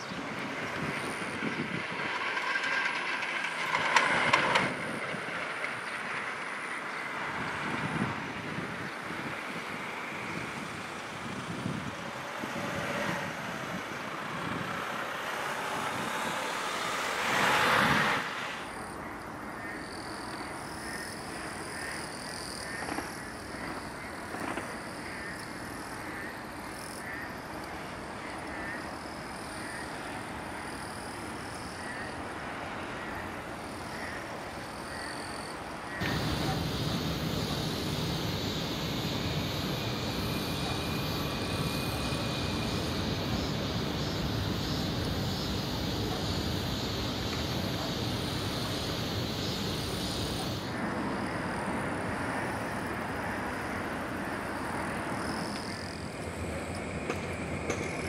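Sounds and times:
rushing noise: 0:00.0 - 0:19.1, 0:35.9 - 0:58.0
low road traffic rumble: 0:00.0 - 0:58.0.

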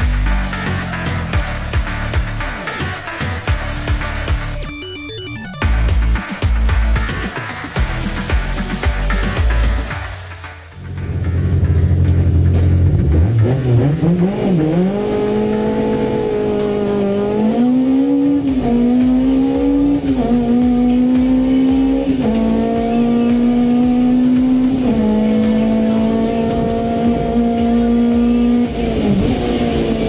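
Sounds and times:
race car engine revving: 0:08.1 - 0:30.0.

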